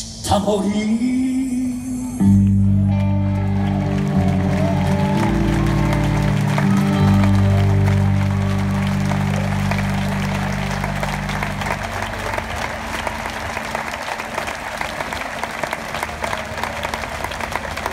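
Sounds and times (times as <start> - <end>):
audience applauding: 2.9 - 17.9
band holding a chord: 3.4 - 14.0.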